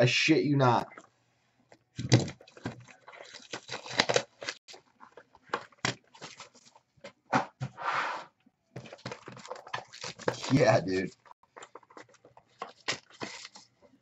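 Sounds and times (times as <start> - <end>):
plastic wrap and cardboard rustling: 2.0 - 7.2, 8.8 - 14.0.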